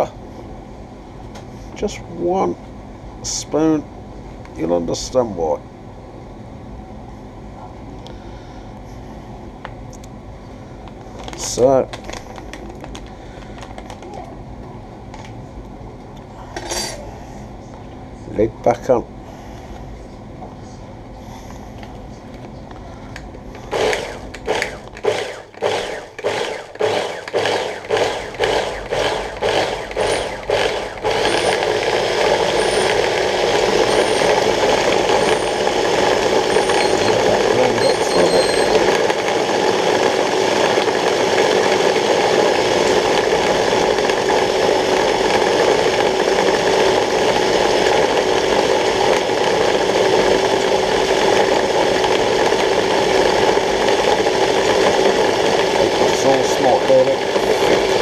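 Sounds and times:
electric food chopper motor: 23.6 - 58.0.

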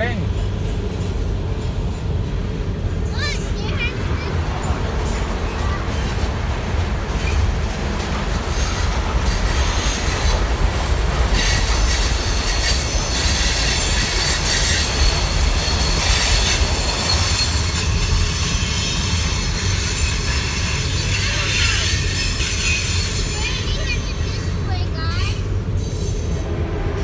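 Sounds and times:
freight train wheels on rails: 0.0 - 27.0
high-pitched wheel squeal: 11.4 - 24.5.

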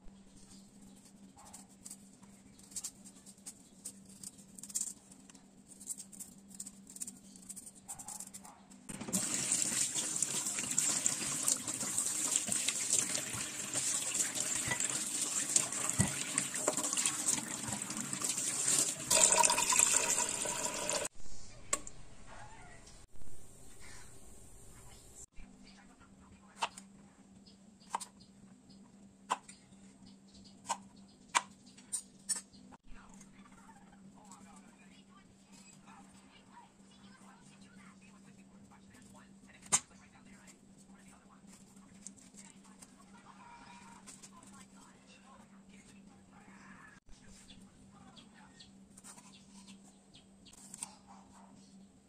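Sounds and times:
tap water running into sink: 8.9 - 21.1.

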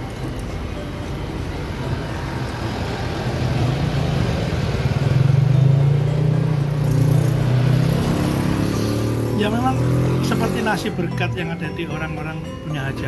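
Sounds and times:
vehicle engine drone: 0.0 - 11.1.

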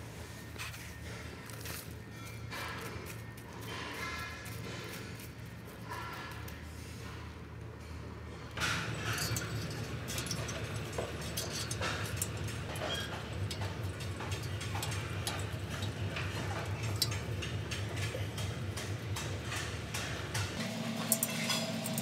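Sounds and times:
wire hooks clicking on metal railing: 8.6 - 22.0.

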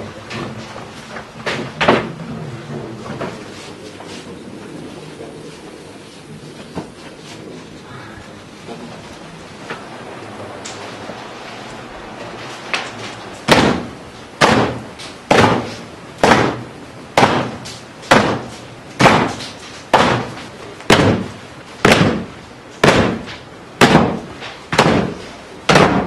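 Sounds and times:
mallets pounding vine: 12.7 - 26.0.

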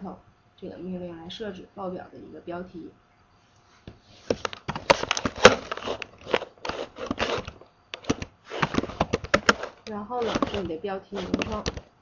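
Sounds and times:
computer keyboard typing: 5.5 - 11.9.

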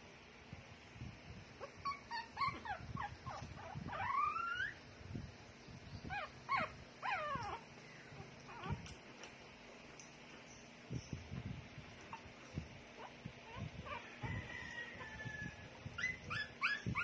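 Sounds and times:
puppy whimpering: 1.6 - 4.8, 6.0 - 9.0, 13.0 - 17.0.

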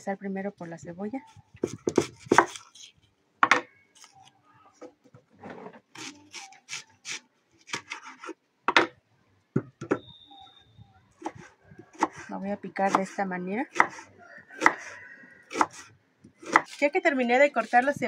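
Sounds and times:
scraping onion skin: 1.3 - 3.1, 4.0 - 4.4, 5.9 - 8.4, 13.7 - 18.0.

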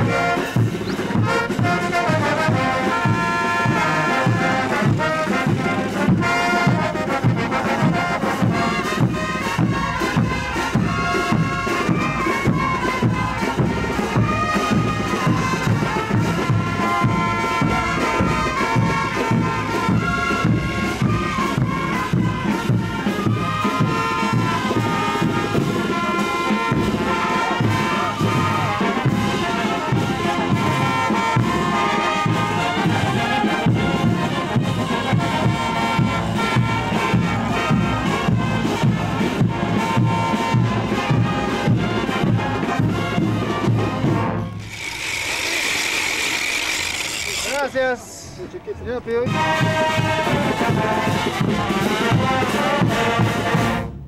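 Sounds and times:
brass band dance music: 0.0 - 54.0
loud steady hiss: 44.6 - 48.4.

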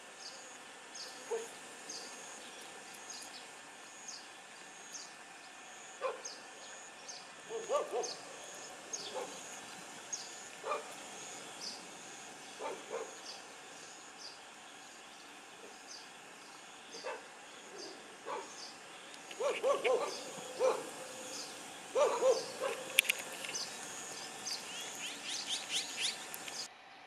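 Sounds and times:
dog barking: 1.3 - 1.6, 6.0 - 6.3, 7.5 - 8.2, 9.0 - 9.4, 10.6 - 10.9, 12.6 - 13.2, 17.0 - 18.6, 19.4 - 21.0, 21.9 - 23.0.

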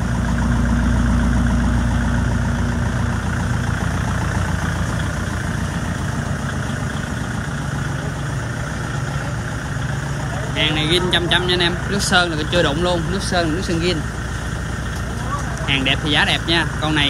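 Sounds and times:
tractor diesel engine idling: 0.0 - 17.0.

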